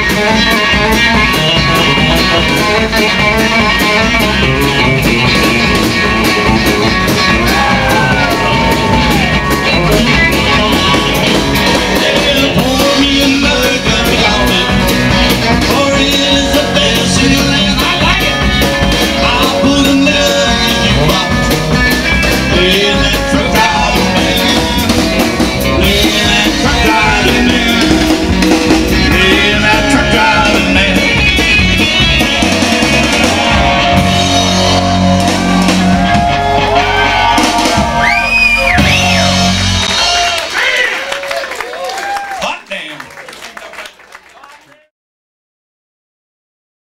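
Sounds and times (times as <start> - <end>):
live rock band playing: 0.0 - 42.8.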